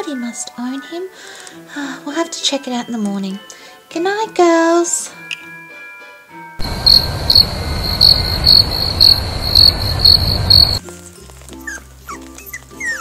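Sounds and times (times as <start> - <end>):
light music: 0.0 - 6.6, 10.8 - 13.0
crickets chirping: 6.6 - 10.8
low hiss: 6.6 - 10.8.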